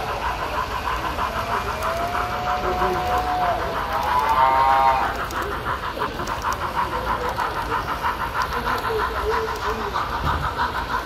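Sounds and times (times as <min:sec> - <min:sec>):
model steam locomotive chuffing: 0:00.0 - 0:11.0
voices murmuring: 0:00.0 - 0:11.0.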